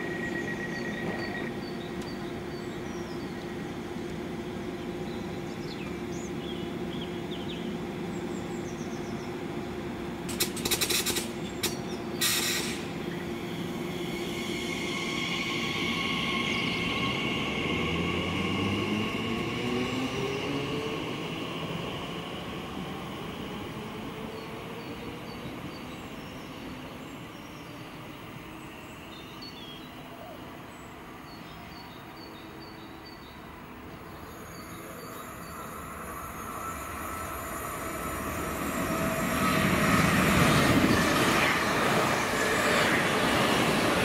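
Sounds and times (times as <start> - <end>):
train electrical hum: 0.0 - 44.0
loud bursts of hiss: 12.2 - 12.9.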